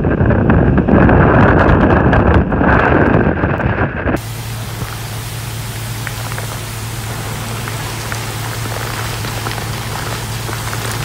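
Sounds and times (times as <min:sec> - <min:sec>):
steady low hum: 0:04.0 - 0:11.0
heavy rain hissing: 0:04.2 - 0:11.0.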